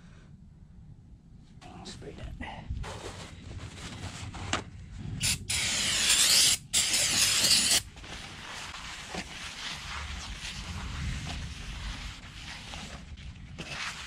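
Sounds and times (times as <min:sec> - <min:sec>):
pressurised spray hissing: 0:05.2 - 0:07.8.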